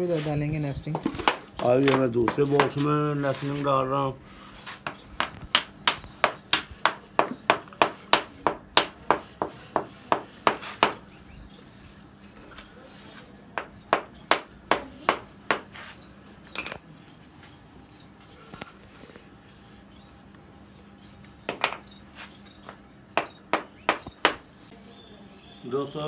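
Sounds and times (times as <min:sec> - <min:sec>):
sharp knocks: 0:23.2 - 0:24.4.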